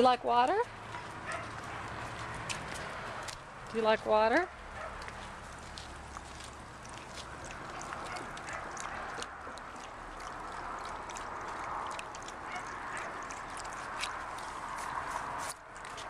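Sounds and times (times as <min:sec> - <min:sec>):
dog lapping water: 0:00.6 - 0:03.8, 0:04.7 - 0:16.0
small water splashes: 0:04.8 - 0:16.0.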